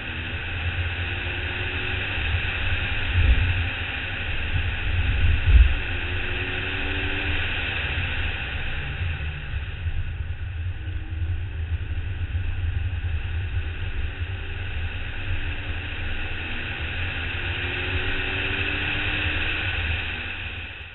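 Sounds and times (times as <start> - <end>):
car engine accelerating: 0.0 - 20.9
wind and road noise: 0.0 - 20.9.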